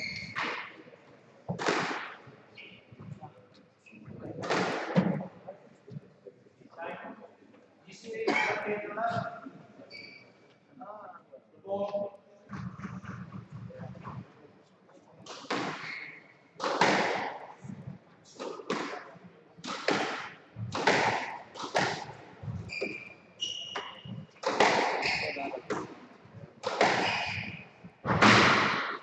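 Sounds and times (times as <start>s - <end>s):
squash ball cracks echoing: 1.5s - 2.2s, 15.2s - 17.6s, 18.4s - 22.4s, 24.4s - 26.0s, 26.6s - 29.0s.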